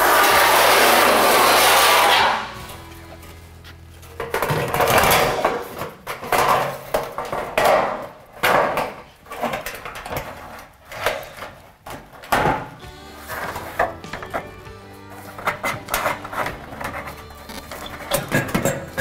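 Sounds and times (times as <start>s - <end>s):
steel panel scraping and knocking: 4.2s - 19.0s.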